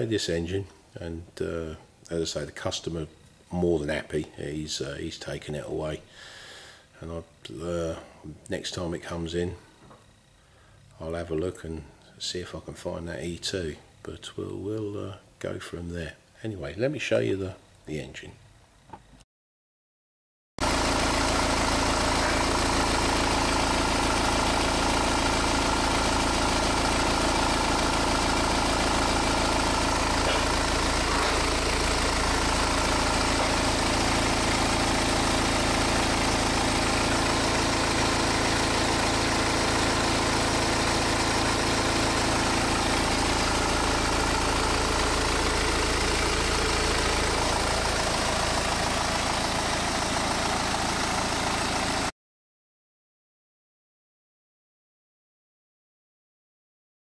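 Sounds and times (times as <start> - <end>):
diesel engine idling: 20.6 - 52.1.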